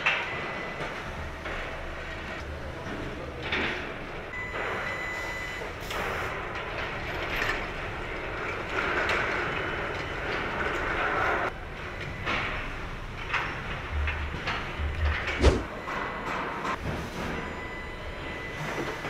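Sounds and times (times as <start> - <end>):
irregular clatter: 6.4 - 17.6.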